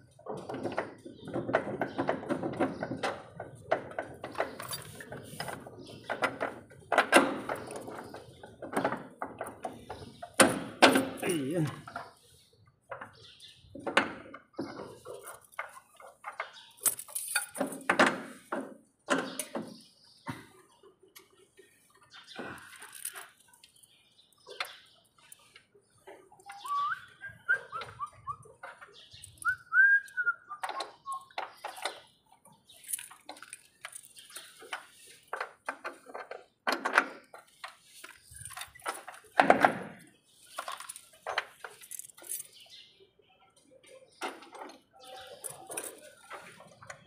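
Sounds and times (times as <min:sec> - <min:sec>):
bird chirping song: 0:00.0 - 0:47.0.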